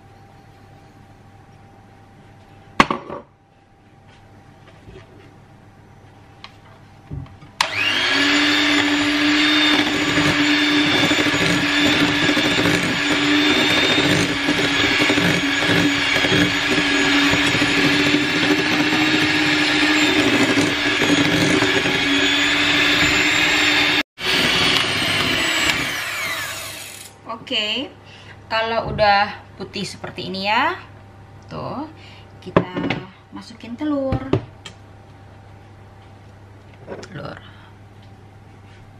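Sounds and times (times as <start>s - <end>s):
electric hand mixer running: 7.6s - 27.1s.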